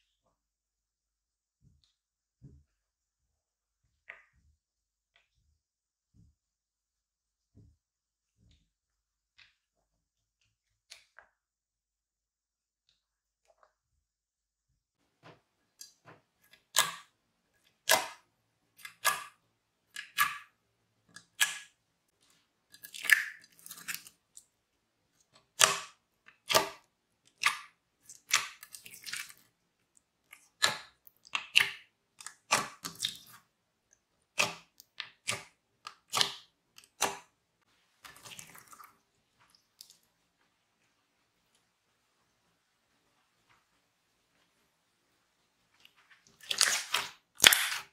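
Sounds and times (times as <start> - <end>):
slime squishing and popping: 46.4 - 47.9.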